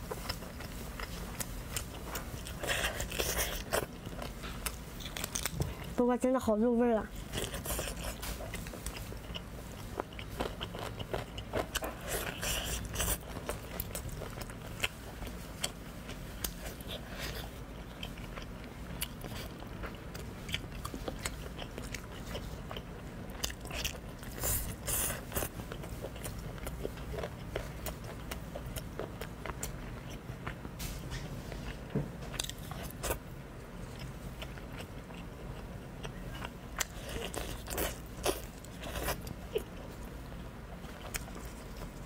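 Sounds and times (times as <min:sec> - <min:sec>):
chewing with wet smacks: 0:33.8 - 0:40.1, 0:40.7 - 0:42.0.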